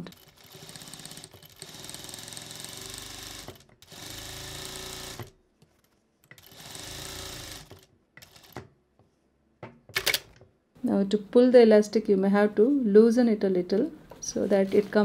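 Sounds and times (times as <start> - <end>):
sewing machine stitching: 0.0 - 5.4, 6.4 - 8.7, 14.2 - 15.0.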